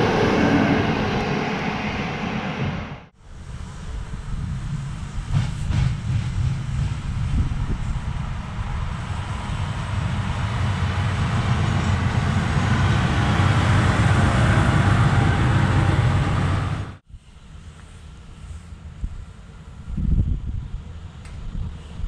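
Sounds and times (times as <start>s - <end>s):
diesel locomotive engine passing: 0.0s - 22.0s
faint wind noise: 0.0s - 22.0s.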